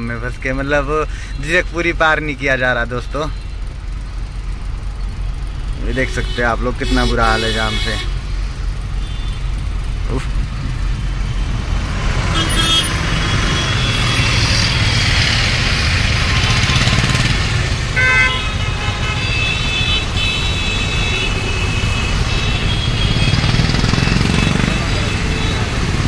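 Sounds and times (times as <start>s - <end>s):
vehicle horns honking: 5.9s - 8.3s, 8.9s - 9.6s, 12.2s - 15.3s, 15.9s - 26.0s.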